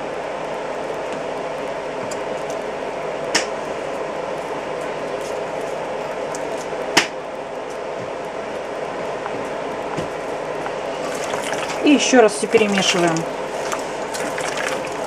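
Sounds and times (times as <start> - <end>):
steady background hum: 0.0 - 15.0
hands squishing food in bowl: 10.9 - 15.0.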